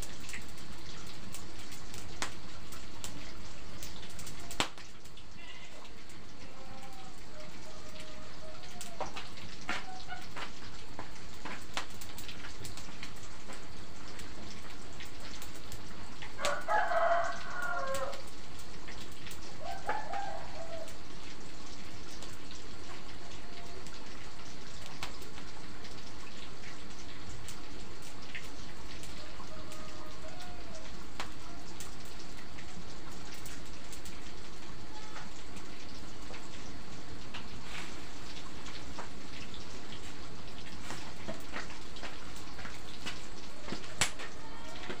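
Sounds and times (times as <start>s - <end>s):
rooster crowing: 5.4s - 10.2s, 16.3s - 18.3s, 19.5s - 21.1s, 29.1s - 31.8s, 43.5s - 45.0s.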